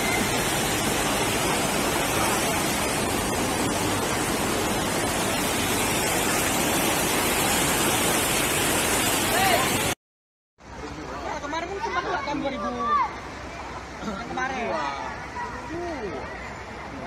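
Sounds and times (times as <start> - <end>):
floodwater rushing: 0.0 - 10.0.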